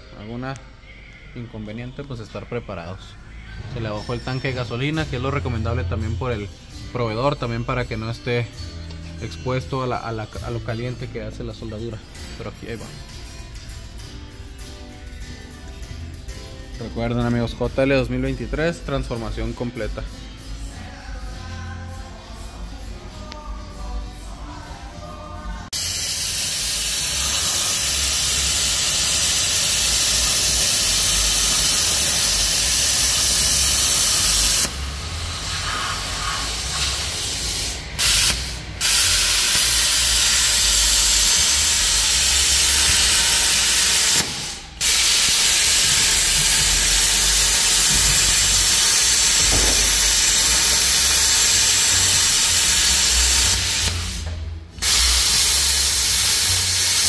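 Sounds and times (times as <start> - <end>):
welding arc crackling and hissing: 25.7 - 57.0.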